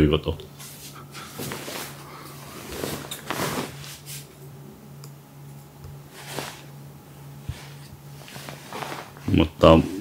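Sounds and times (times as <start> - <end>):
cats scuffling on bedding: 7.4 - 9.4.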